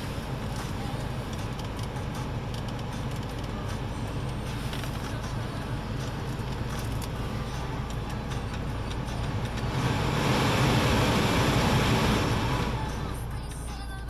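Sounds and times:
heater blower fan rushing air: 0:09.6 - 0:13.1.

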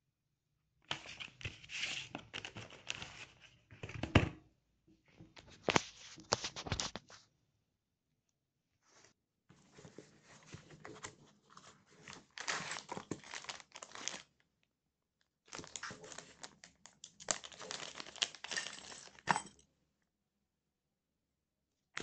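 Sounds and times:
plastic bags crinkling: 0:12.3 - 0:14.2, 0:15.5 - 0:19.3.

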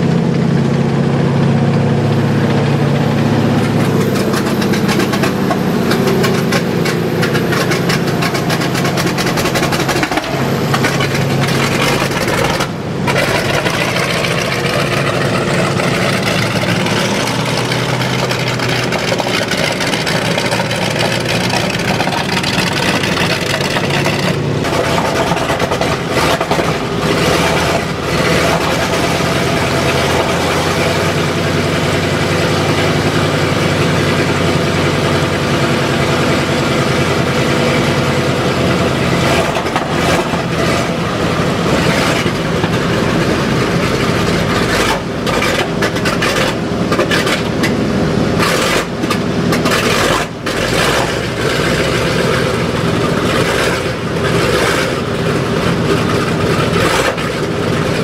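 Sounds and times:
radial engine running: 0:00.0 - 0:58.0.

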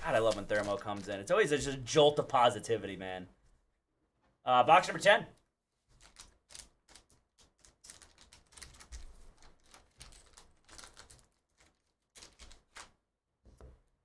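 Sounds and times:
plastic pack crinkling and tearing: 0:00.0 - 0:01.8, 0:06.0 - 0:13.0.

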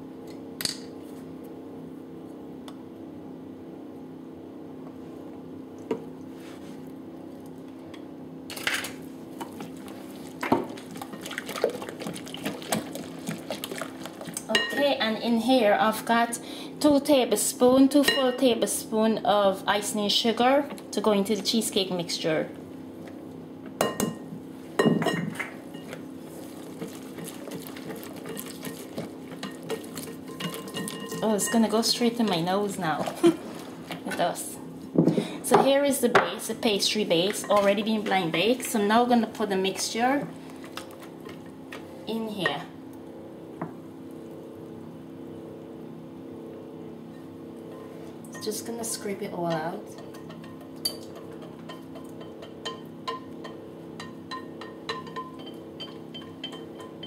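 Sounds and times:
steady low hum: 0:00.0 - 0:57.0
whisk swishing batter: 0:09.5 - 0:14.4, 0:26.2 - 0:31.3
whisk beating batter in glass bowl: 0:26.3 - 0:32.4.

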